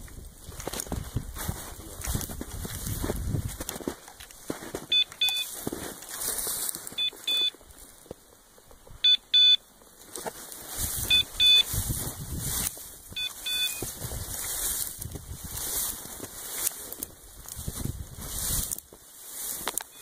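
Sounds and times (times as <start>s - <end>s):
brushing through dry grass: 0.0s - 8.2s, 9.9s - 20.0s
wind: 0.0s - 20.0s
electronic collar double beeps: 4.9s - 5.5s, 7.0s - 7.5s, 9.0s - 9.6s, 11.0s - 11.7s, 13.2s - 13.9s.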